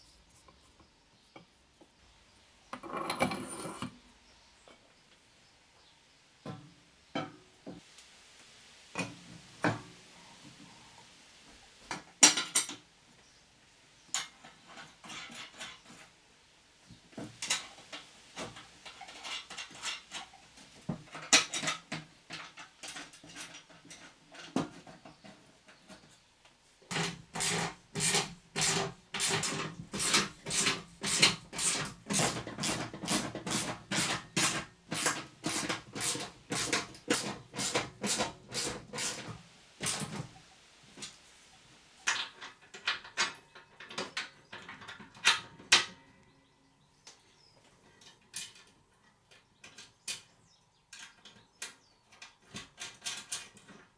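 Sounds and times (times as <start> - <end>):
metal parts clicking and tapping: 26.9 - 40.1, 50.9 - 53.9.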